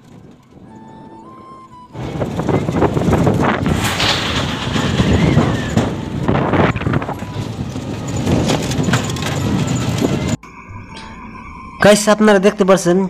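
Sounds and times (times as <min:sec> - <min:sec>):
rickshaw rumbling and rattling: 0:00.0 - 0:10.4
wind buffeting microphone: 0:00.0 - 0:10.4.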